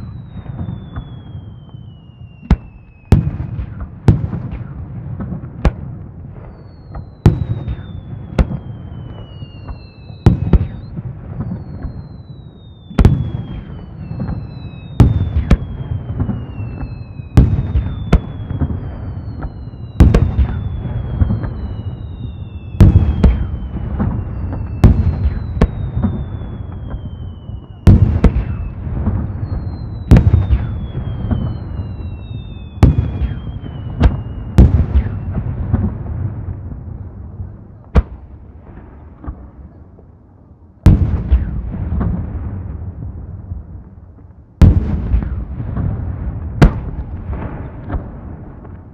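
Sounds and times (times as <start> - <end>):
firework whistles sliding down: 0.0 - 3.2, 6.4 - 35.5.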